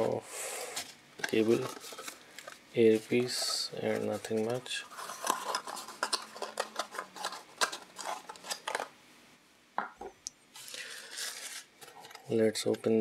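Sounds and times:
packaging clicks and rustles: 0.8 - 8.9, 10.6 - 12.8.

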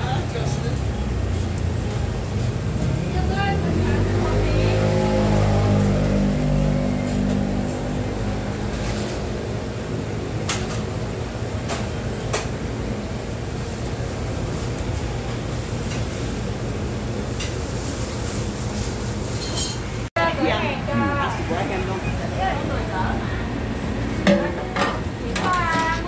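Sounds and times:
deep drone: 1.2 - 10.1
utensils and bowls clinking: 17.3 - 20.1, 24.2 - 26.0.

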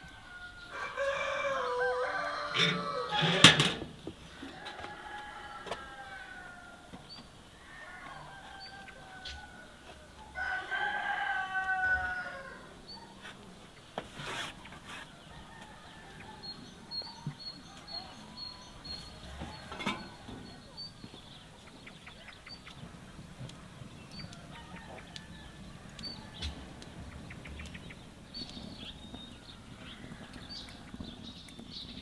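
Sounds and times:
rooster crowing: 0.0 - 3.6, 4.4 - 6.9, 7.6 - 12.7.

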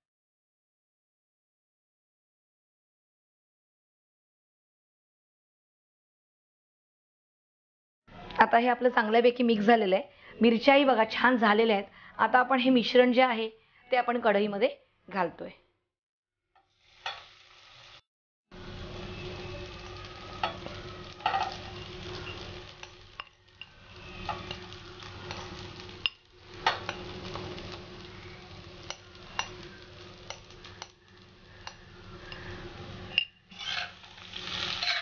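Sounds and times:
food sizzling in hot oil: 16.6 - 35.0
spoon clicking against bowl and pan: 28.8 - 33.4.

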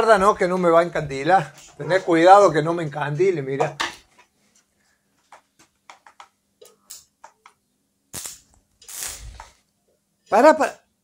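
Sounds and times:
crackling arc hiss: 6.0 - 10.8
sharp arc crack: 8.1 - 9.6
welding electrode ticking on steel: 8.1 - 9.6.

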